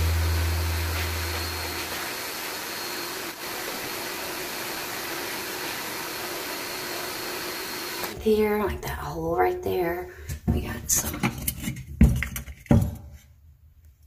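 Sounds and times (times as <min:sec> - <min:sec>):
deep low hum: 0:00.0 - 0:02.1
shop vacuum suction hiss: 0:00.0 - 0:08.2.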